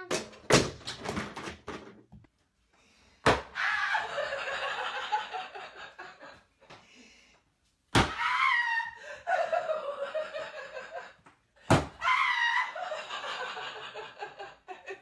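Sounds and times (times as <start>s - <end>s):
woman shrieking and laughing: 3.6s - 4.8s, 8.1s - 11.0s, 12.0s - 14.1s.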